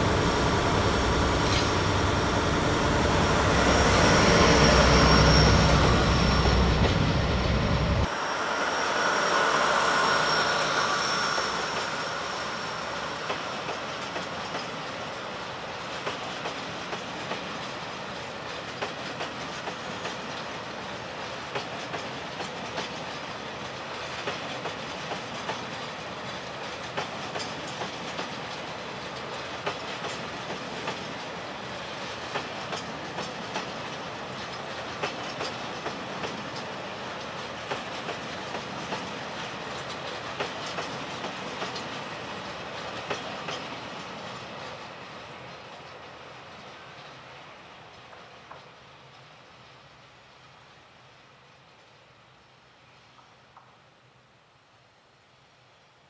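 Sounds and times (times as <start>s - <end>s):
train wheels clacking over rail joints: 1.2s - 2.1s, 11.0s - 49.3s.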